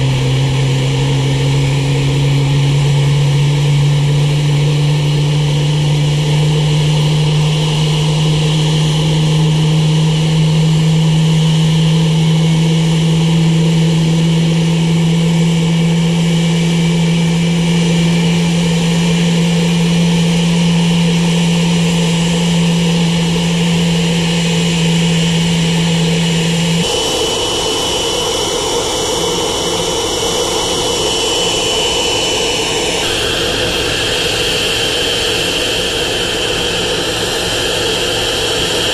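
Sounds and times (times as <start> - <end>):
jet engine whine: 0.0 - 38.9
strong low hum: 0.0 - 38.9.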